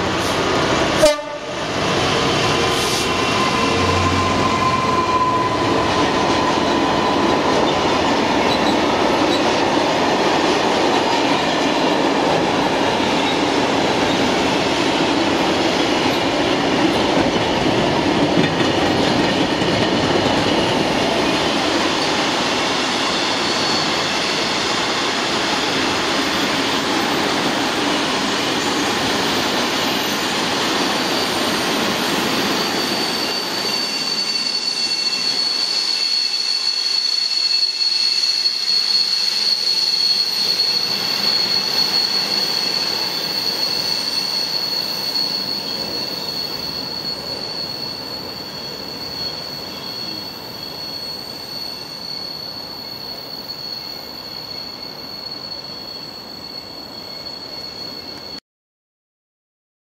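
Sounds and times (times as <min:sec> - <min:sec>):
freight train rolling past: 0:00.0 - 0:58.4
high-pitched wheel squeal: 0:02.6 - 0:09.6, 0:21.7 - 0:58.4.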